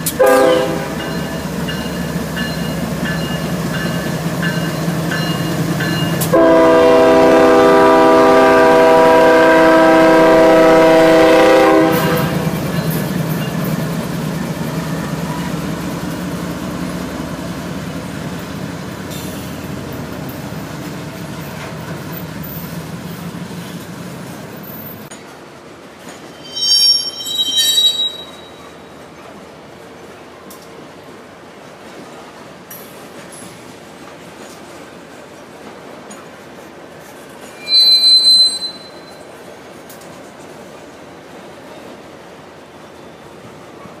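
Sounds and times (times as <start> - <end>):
train rumbling: 0.0 - 44.0
locomotive air horn: 0.1 - 1.0, 6.2 - 12.5, 26.4 - 28.5, 37.6 - 39.0
high-pitched squeals: 26.3 - 28.8, 37.6 - 39.2.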